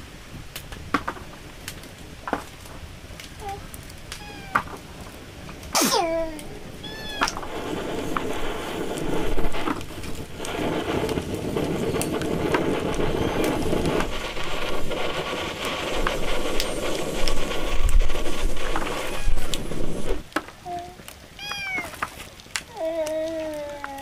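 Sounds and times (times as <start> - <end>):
loud steady rushing noise: 5.0 - 20.2.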